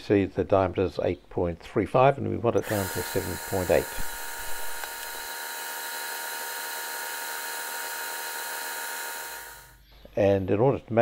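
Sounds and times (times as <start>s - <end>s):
metal lathe high-pitched hiss: 2.6s - 9.8s.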